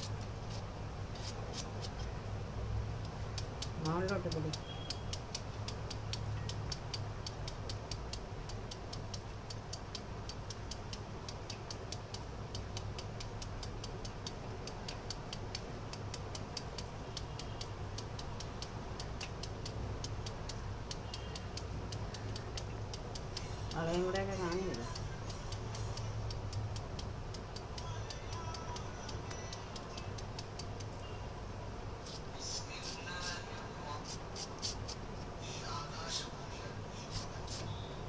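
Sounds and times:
knife cutting beetroot: 0:00.0 - 0:02.1, 0:03.3 - 0:26.8, 0:34.0 - 0:35.1.

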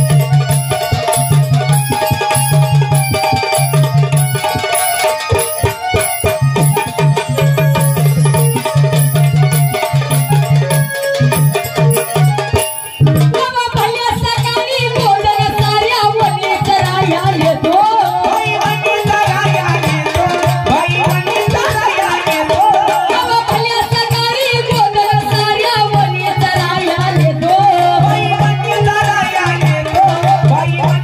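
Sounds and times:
hand drum rhythm: 0:00.0 - 0:31.0
instrumental accompaniment: 0:00.0 - 0:31.0
woman singing: 0:12.3 - 0:31.0.

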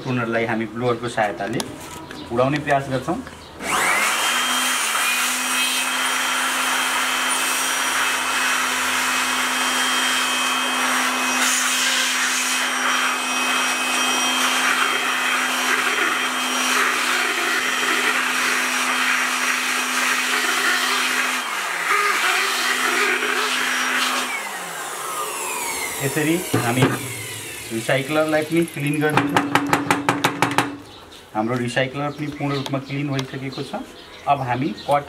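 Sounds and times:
electric air blower running: 0:03.6 - 0:31.0.

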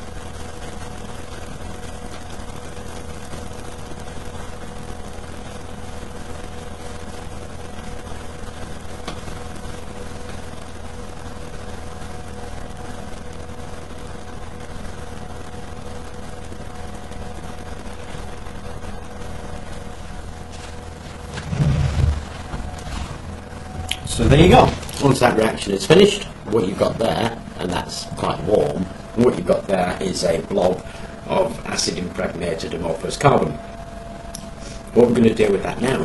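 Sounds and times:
even hiss: 0:00.0 - 0:33.6
low mechanical drone: 0:00.0 - 0:36.0
faint steady tones: 0:22.3 - 0:36.0.

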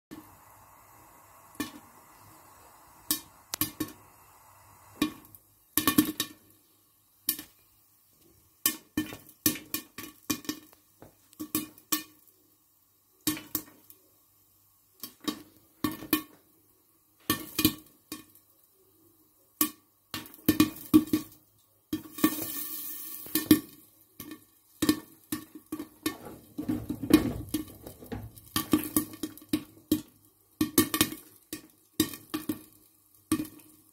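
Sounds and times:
hiss: 0:00.1 - 0:05.4
popcorn popping: 0:00.1 - 0:14.1, 0:14.9 - 0:33.9.

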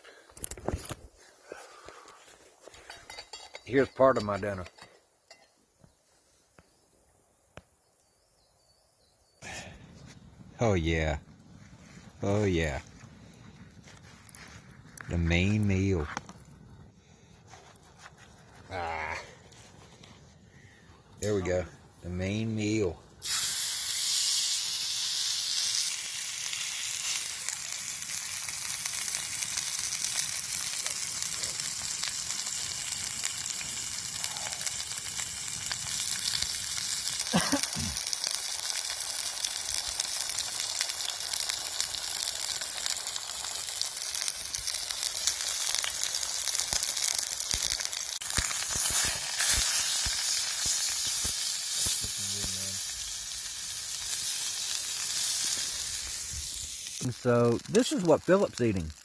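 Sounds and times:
steak sizzling in a skillet: 0:22.6 - 0:59.0.

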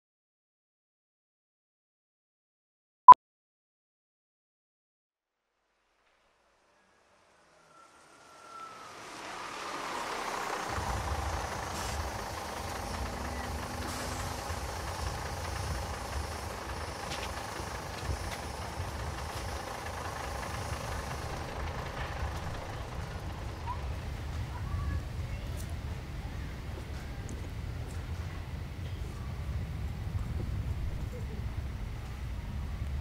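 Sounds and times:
bus hiss: 0:06.0 - 0:30.8
bus engine rumble: 0:06.8 - 0:33.0.

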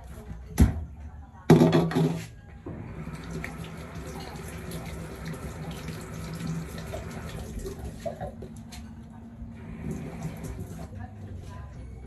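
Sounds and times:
water running from a tap: 0:02.9 - 0:08.3, 0:09.7 - 0:10.9.

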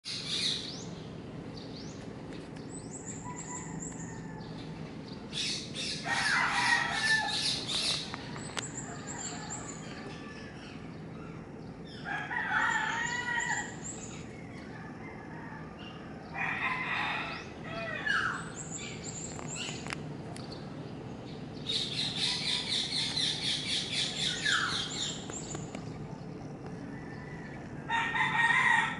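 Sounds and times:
small birds chirping: 0:00.0 - 0:15.2, 0:17.2 - 0:27.9
rooster crowing: 0:03.0 - 0:04.8, 0:05.9 - 0:10.6, 0:11.9 - 0:13.9, 0:14.7 - 0:18.4, 0:26.7 - 0:28.9.

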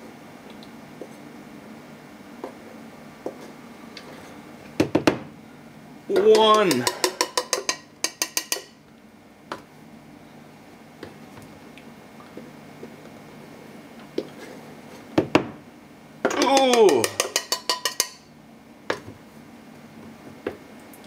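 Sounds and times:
utensils knocking on plastic container: 0:06.2 - 0:08.7.

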